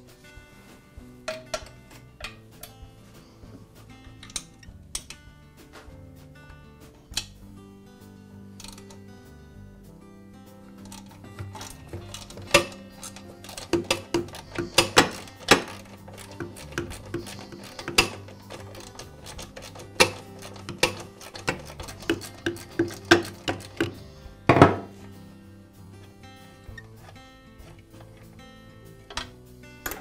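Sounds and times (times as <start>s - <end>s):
background music: 0.0s - 30.0s
socket wrench clicking: 10.8s - 24.1s
metal clunk: 10.8s - 25.0s.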